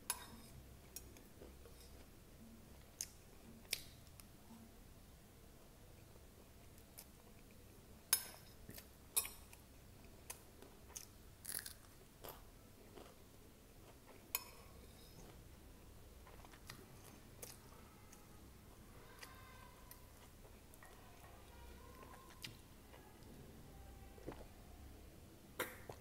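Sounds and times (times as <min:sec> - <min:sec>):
crunchy chewing: 0:10.3 - 0:13.2.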